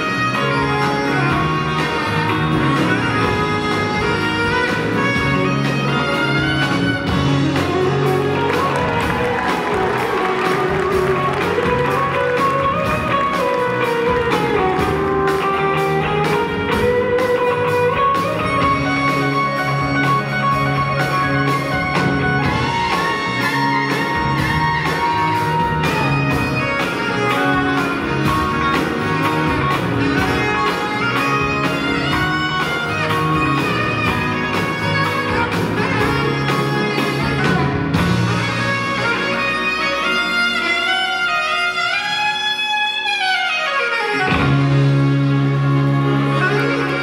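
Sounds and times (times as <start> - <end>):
live rock band: 0.0 - 47.0
saxophone solo: 0.0 - 47.0.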